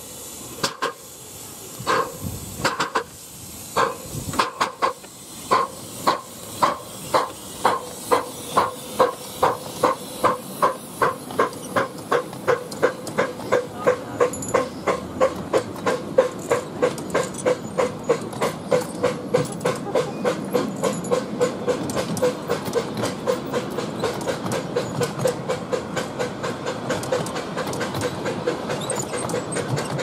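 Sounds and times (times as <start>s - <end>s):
train coaches rumbling on track: 0.0s - 30.0s.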